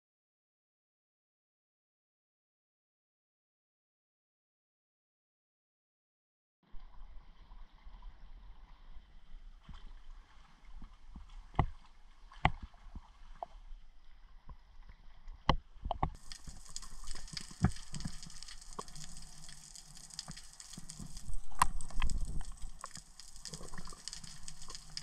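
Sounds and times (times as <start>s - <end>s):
water lapping and sloshing: 6.8s - 25.0s
underwater bubbles hissing: 16.2s - 25.0s.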